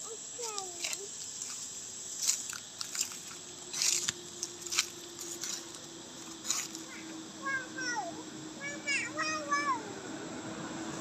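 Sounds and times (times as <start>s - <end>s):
dry leaves crunching: 0.4s - 7.0s.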